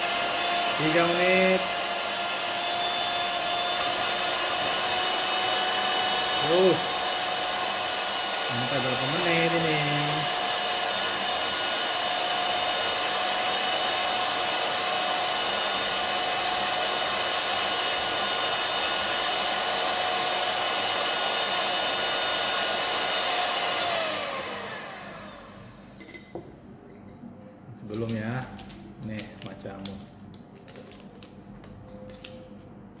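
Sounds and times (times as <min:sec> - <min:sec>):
electric hand mixer whirring: 0:00.0 - 0:25.9.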